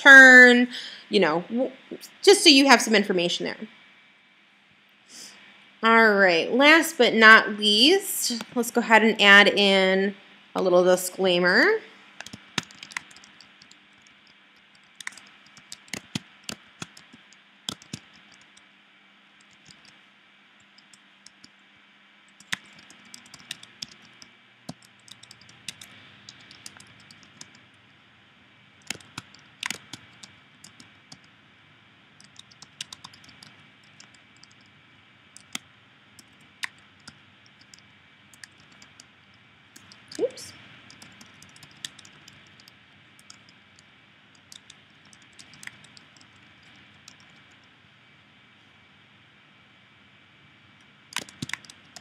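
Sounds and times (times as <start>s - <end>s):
keyboard key clicks: 51.1s - 52.0s.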